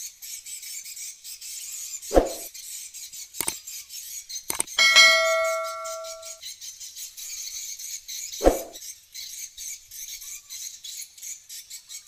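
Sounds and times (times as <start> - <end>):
short whoosh: 2.1 - 2.5, 8.4 - 8.8
clicks: 4.5 - 6.3
notification bell ding: 4.8 - 6.3.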